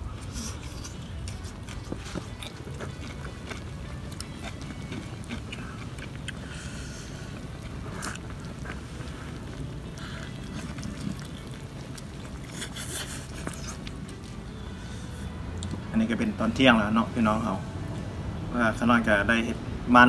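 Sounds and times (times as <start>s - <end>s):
person chewing food: 0.0s - 15.9s
slurping: 0.1s - 15.4s.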